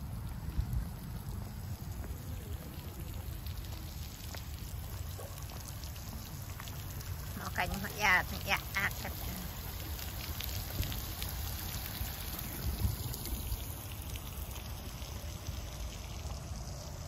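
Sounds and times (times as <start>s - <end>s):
wind on microphone: 0.0s - 1.6s, 11.9s - 13.6s
fountain splashing and trickling: 0.0s - 17.0s.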